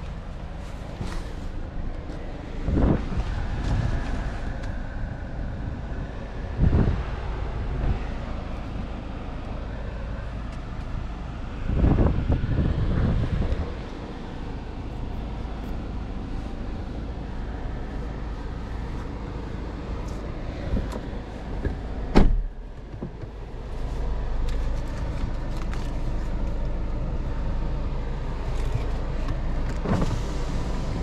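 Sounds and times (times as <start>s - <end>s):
car engine idling: 0.0s - 31.0s
car door shutting: 20.7s - 23.5s, 28.6s - 31.0s.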